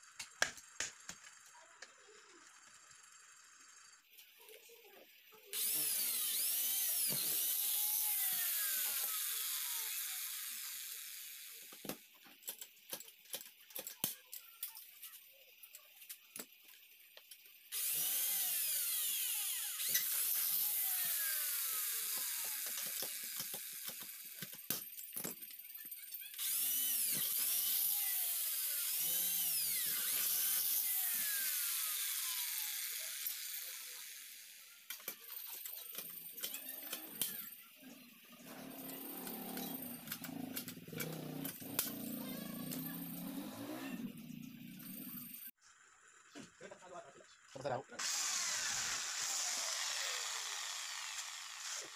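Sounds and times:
electric drill boring into metal: 5.5 - 11.8, 17.7 - 24.5, 26.2 - 37.5, 38.4 - 45.5, 48.0 - 51.9.

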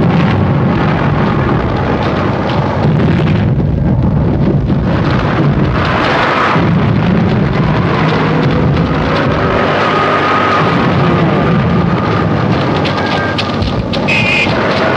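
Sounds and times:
rumble of shell explosions: 0.0 - 9.9.

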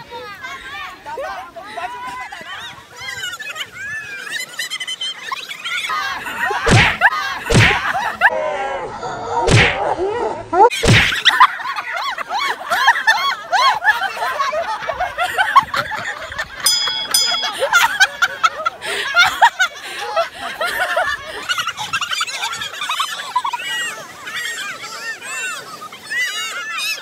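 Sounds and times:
people shouting and cheering: 5.7 - 14.9, 16.6 - 21.8
loud sharp slaps: 6.7 - 7.8, 9.5 - 9.8, 10.8 - 11.2.

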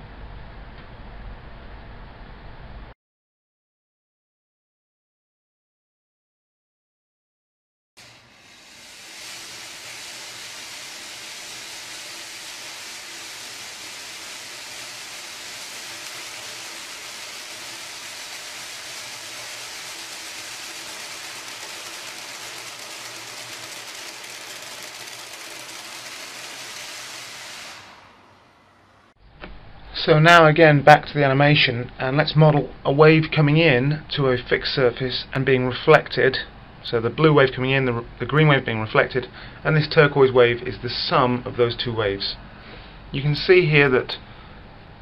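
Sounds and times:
metal spring coils rattling: 8.0 - 29.1.

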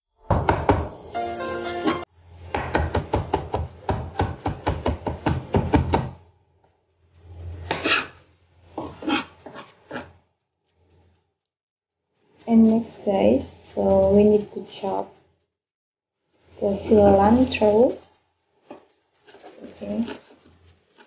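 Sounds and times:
knife chopping on cutting board: 0.3 - 1.0
music: 1.0 - 2.1.

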